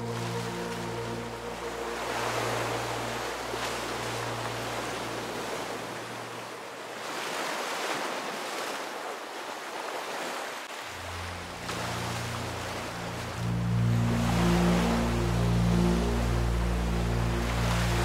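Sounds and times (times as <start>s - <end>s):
background music low notes: 0.0s - 6.3s, 10.9s - 18.0s
ocean surf washing: 0.0s - 18.0s.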